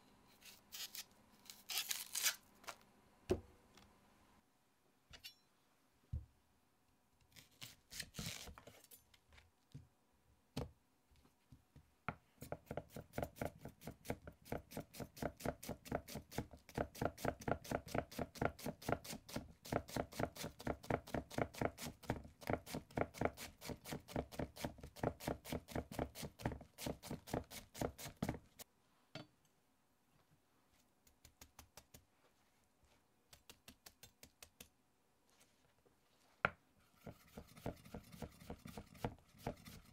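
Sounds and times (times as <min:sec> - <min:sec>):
knife chopping onion on board: 0:12.4 - 0:28.4, 0:37.0 - 0:39.9.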